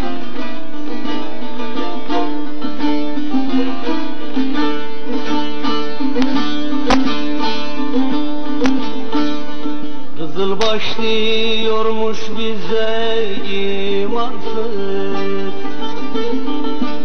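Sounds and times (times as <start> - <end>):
plucked lute melody over drone: 0.0 - 17.0
sharp taps: 6.2 - 7.2, 8.6 - 8.8.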